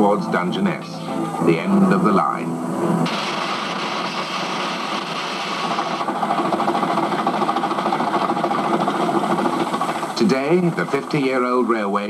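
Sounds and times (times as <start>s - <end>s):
steam hissing: 3.0s - 12.0s
steam train chuffing and clattering: 3.0s - 12.0s.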